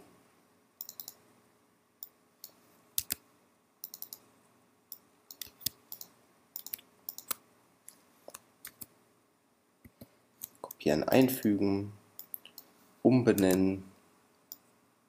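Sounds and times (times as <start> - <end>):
mouse and keyboard clicks: 0.8 - 1.2, 2.4 - 3.2, 3.8 - 4.2, 4.9 - 8.9, 12.2 - 12.7, 13.3 - 13.6.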